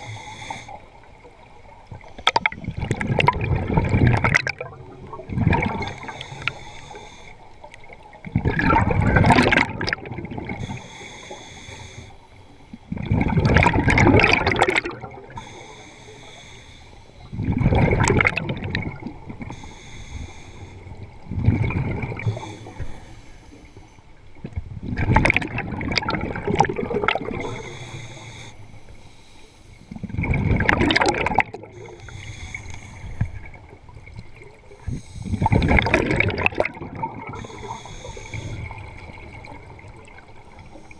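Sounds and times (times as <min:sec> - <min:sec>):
exhaled bubbles gushing underwater: 0:00.9 - 0:06.6, 0:07.6 - 0:10.9, 0:12.8 - 0:15.6, 0:17.3 - 0:19.6, 0:20.8 - 0:23.0, 0:24.3 - 0:28.4, 0:29.9 - 0:32.2, 0:33.0 - 0:40.9
regulator hiss: 0:05.8 - 0:07.5, 0:10.6 - 0:12.3, 0:15.4 - 0:17.3, 0:19.5 - 0:21.0, 0:27.4 - 0:29.9, 0:37.4 - 0:39.0.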